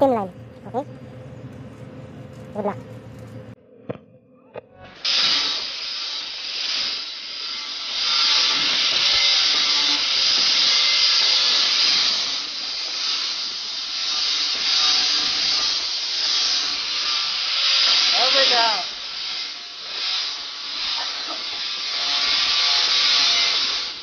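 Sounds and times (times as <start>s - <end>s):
angle grinder hissing on metal: 5.0s - 24.0s.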